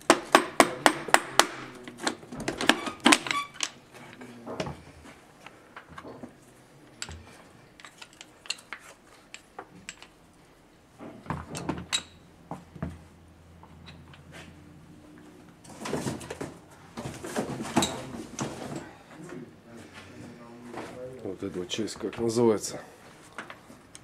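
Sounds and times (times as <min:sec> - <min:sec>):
clicks of small metal parts: 0:07.8 - 0:10.2.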